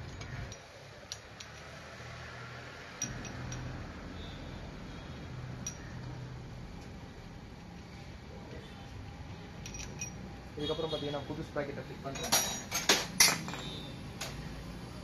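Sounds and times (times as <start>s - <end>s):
tools clinking on metal: 0.0s - 1.7s, 3.0s - 3.7s, 5.6s - 6.1s, 9.6s - 10.2s, 12.1s - 13.8s.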